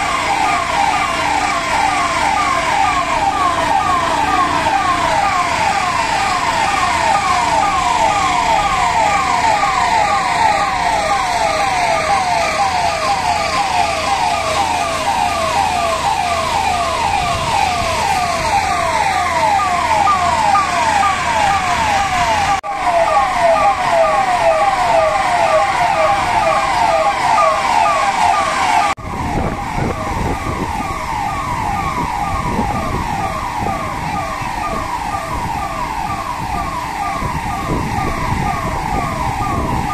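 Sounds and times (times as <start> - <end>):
electronic siren yelping: 0.0 - 39.9.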